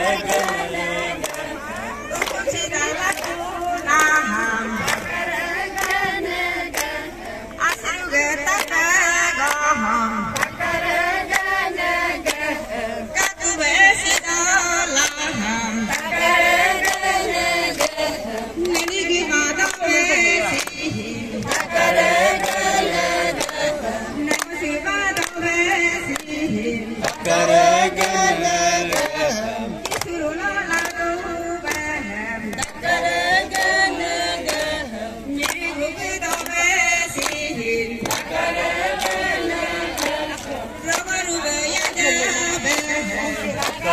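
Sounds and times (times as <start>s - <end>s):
group of women singing: 0.0s - 43.9s
hand claps: 0.1s - 12.6s, 13.2s - 43.9s.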